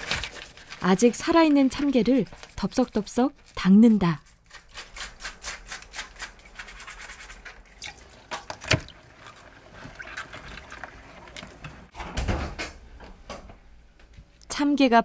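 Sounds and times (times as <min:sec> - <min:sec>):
water splashing in a steel sink: 0:06.2 - 0:11.9.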